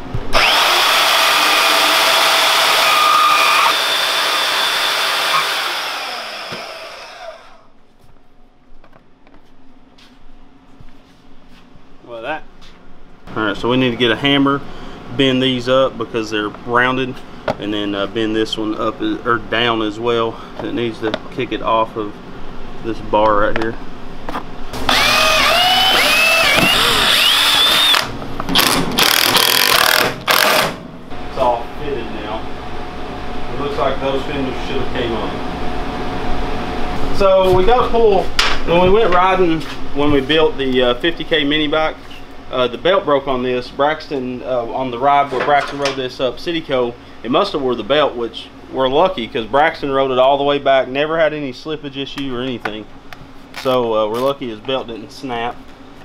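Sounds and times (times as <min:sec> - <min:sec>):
band saw cutting plastic: 0:00.3 - 0:07.6, 0:24.8 - 0:30.8
power driver whining: 0:00.3 - 0:07.7, 0:24.8 - 0:30.8.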